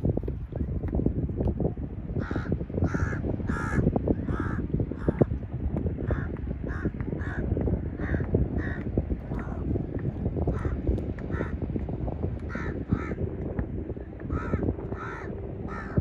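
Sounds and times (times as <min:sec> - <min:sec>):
steady low rumble: 0:00.0 - 0:16.0
crow-like bird cawing: 0:14.3 - 0:16.0.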